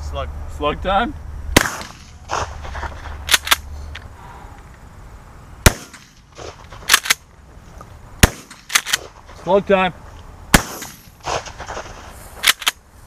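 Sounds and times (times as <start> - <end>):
shotgun shot: 1.6 - 2.7, 5.6 - 7.2, 8.2 - 9.1, 10.5 - 12.7
shotgun pump clacks: 3.3 - 3.6, 6.4 - 7.2, 8.5 - 9.1, 12.4 - 12.8.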